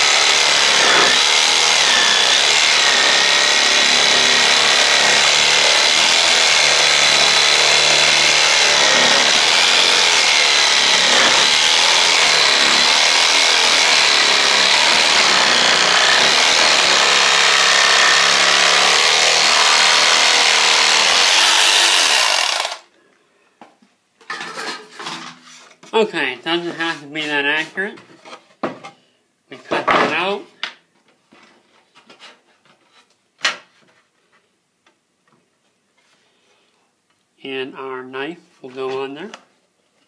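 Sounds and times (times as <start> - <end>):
jigsaw cutting wood: 0.0 - 22.8.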